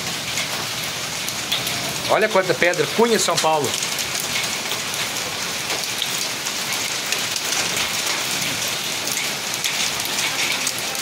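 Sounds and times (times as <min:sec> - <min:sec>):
hailstones ticking: 0:00.0 - 0:11.0
rain patter: 0:00.0 - 0:11.0.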